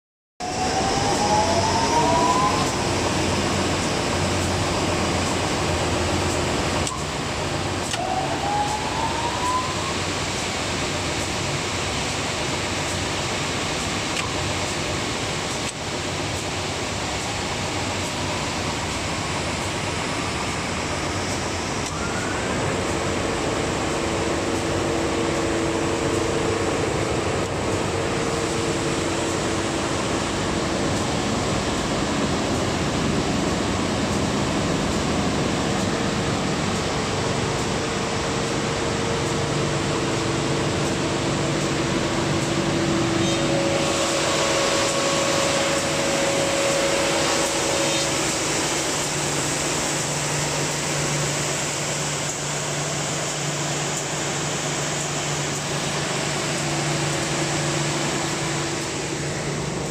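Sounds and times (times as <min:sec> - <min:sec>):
sanding machine drone: 0:42.5 - 0:59.9.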